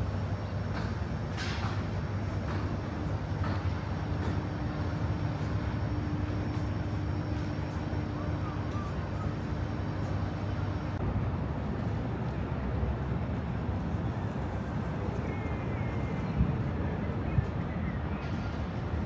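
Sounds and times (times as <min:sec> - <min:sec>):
low engine rumble: 0:00.0 - 0:19.0.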